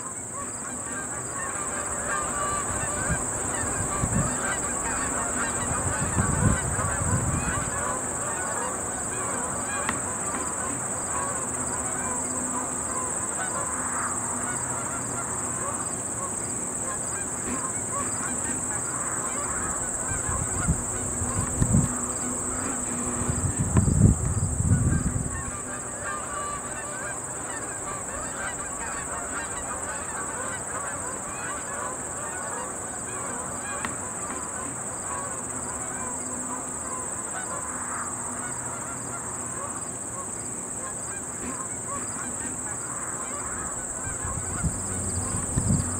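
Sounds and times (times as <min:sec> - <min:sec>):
geese honking: 0:00.0 - 0:45.9
high insect drone: 0:00.0 - 0:45.9
wind rumbling on microphone: 0:02.5 - 0:07.9, 0:19.5 - 0:25.7, 0:43.5 - 0:45.9.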